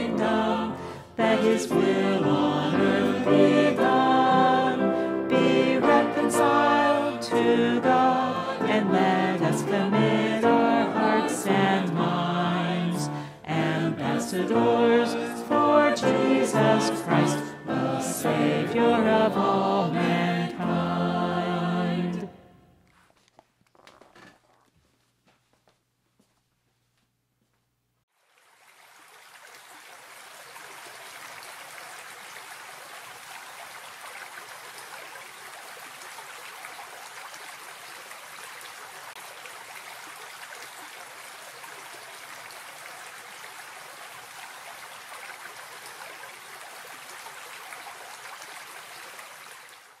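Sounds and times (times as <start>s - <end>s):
stream babbling over stones: 28.2s - 50.0s.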